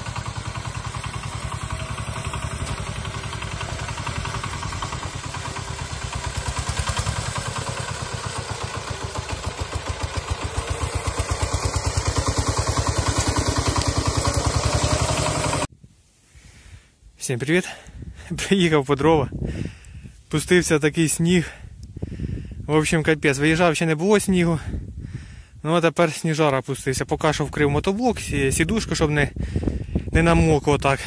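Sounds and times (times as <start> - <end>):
diesel tractor chugging: 0.0 - 15.7.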